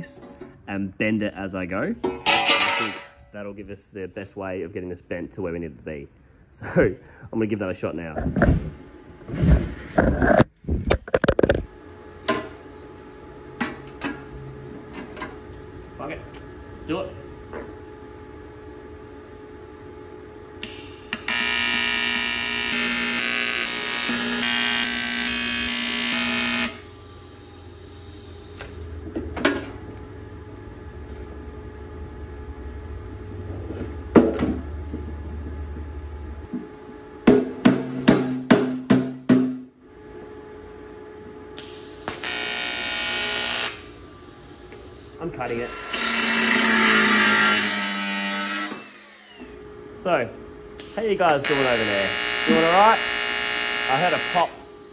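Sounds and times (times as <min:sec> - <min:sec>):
welding arc buzzing: 0:20.6 - 0:29.0, 0:41.6 - 0:49.7, 0:50.8 - 0:54.9.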